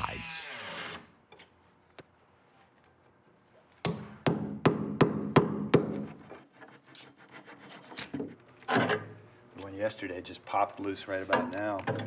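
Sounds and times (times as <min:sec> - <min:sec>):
hammer striking chisel: 0:03.8 - 0:06.1.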